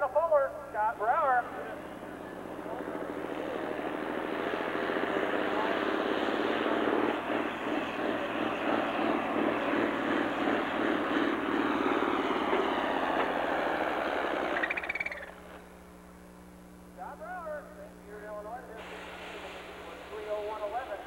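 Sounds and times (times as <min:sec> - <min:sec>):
faint steady hum: 0:00.0 - 0:21.0
tractor diesel engine under load: 0:01.4 - 0:14.7.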